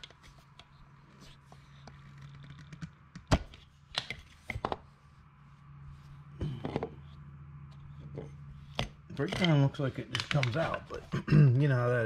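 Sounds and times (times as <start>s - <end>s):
steady low hum: 0.0s - 12.0s
metal parts clicking and knocking: 8.7s - 11.0s.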